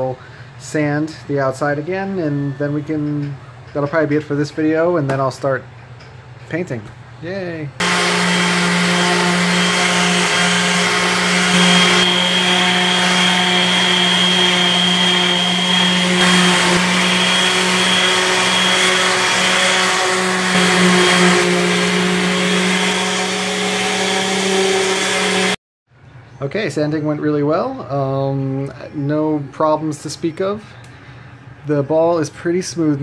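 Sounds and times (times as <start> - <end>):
orbital sander humming: 7.8 - 25.6
sanding hiss: 7.8 - 25.6.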